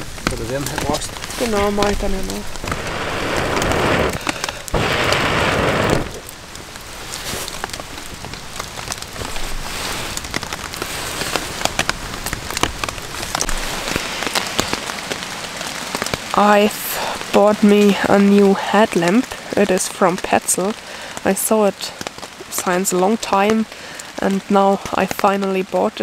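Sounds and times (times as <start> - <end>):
rain pattering: 0.0 - 26.0
breath blown onto fire: 2.5 - 6.3.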